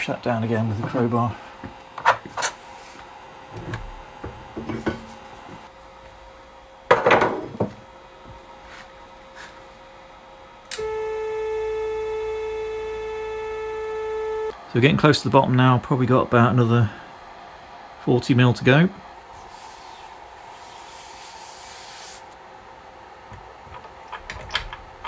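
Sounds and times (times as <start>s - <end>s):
stepper motor high whine: 10.7s - 14.9s.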